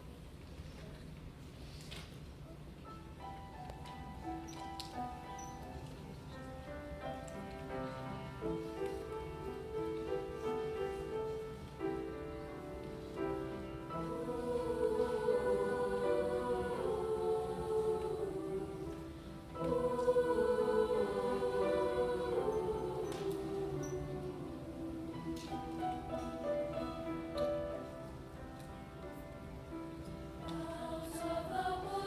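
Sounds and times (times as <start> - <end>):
piano accompaniment: 2.8 - 32.0
mixed choir singing: 13.0 - 28.0, 30.2 - 32.0.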